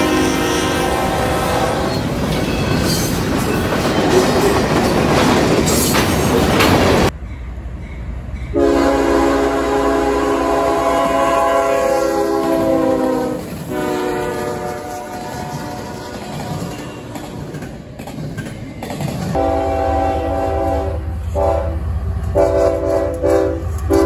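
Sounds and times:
locomotive air horn: 0.0 - 2.0, 8.5 - 16.7, 19.4 - 24.0
train wheels on rails: 0.0 - 24.0.

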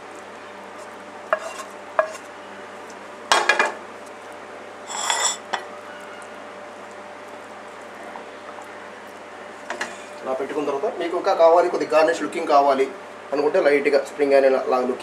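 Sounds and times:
frying pan knocking on plate: 3.3 - 3.8
ringing scraping clink: 4.9 - 5.4.

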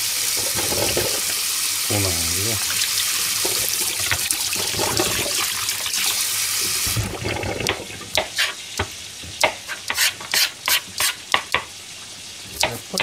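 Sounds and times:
tap water splashing in sink: 0.3 - 1.5, 2.6 - 9.6.

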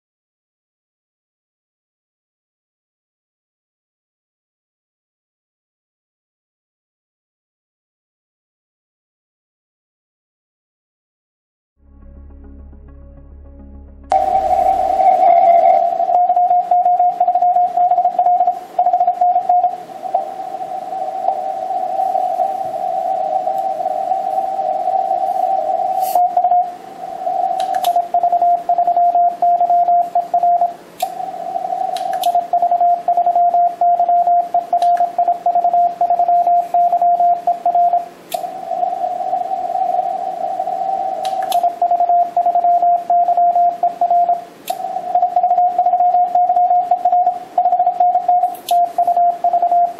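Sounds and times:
radio hiss: 14.1 - 29.5, 30.3 - 33.3, 38.0 - 41.6, 44.4 - 49.9
morse code beeps: 14.1 - 49.9.

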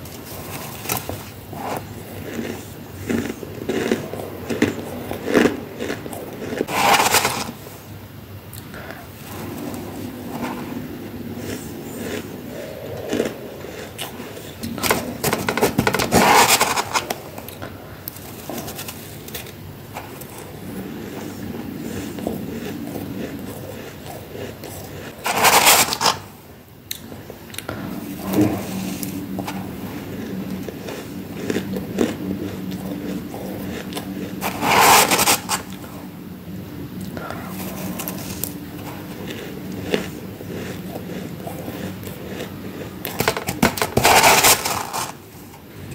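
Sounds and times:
frost being chewed: 0.0 - 7.8, 8.5 - 45.9
spoon scraping frost in plastic tub: 5.8 - 7.7, 14.7 - 17.2, 25.0 - 26.3, 33.8 - 35.8, 43.0 - 45.2.

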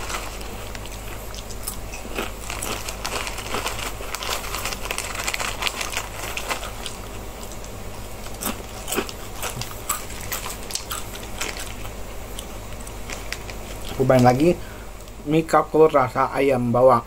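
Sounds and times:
person chewing crunchy crackers: 0.0 - 14.5.

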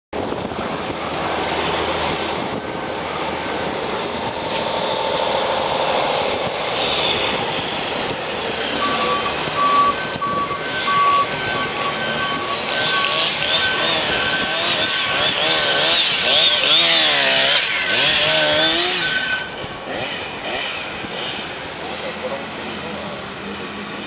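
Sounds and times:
vehicle road and engine noise: 0.1 - 24.0
truck reversing beeper: 8.0 - 19.6.

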